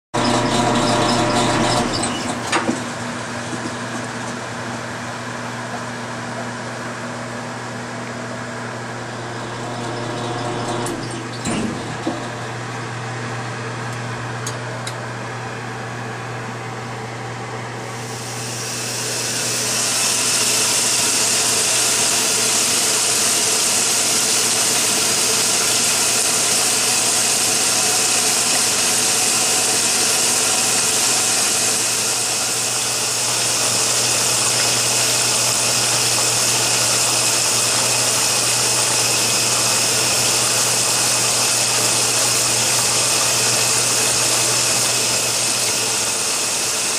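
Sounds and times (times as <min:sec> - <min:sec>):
water rushing into washer drum: 0:00.2 - 0:04.0, 0:08.9 - 0:12.6, 0:17.8 - 0:46.9.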